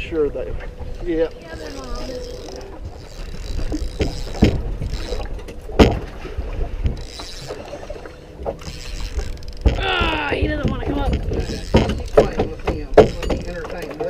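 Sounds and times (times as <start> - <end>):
water lapping against boat hull: 0.0 - 14.0
sharp knocks: 5.8 - 6.1, 9.6 - 14.0.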